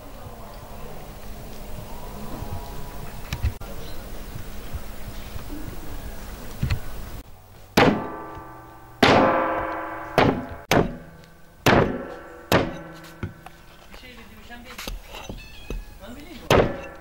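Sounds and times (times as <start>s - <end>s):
cleaver chopping on wood: 7.8s - 13.4s, 16.5s - 17.0s.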